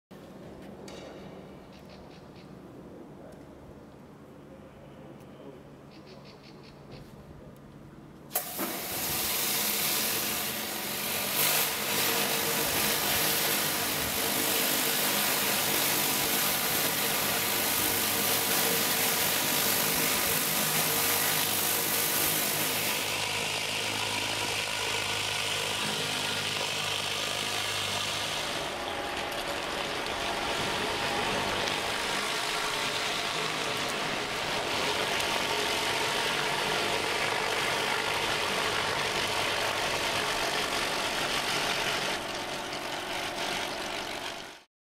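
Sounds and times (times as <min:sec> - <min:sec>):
water jets hissing on paving: 0:08.3 - 0:42.9
pressure washer motor humming: 0:08.3 - 0:44.7.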